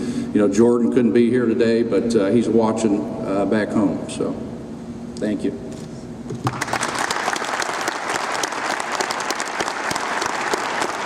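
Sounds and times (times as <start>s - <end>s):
audience applauding: 6.4s - 11.0s.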